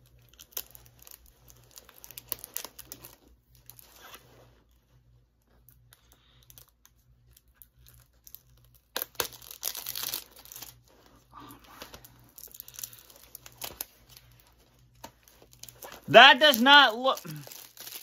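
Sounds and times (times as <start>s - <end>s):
plastic packaging tearing: 0.2s - 4.2s, 7.6s - 10.9s, 11.6s - 18.0s.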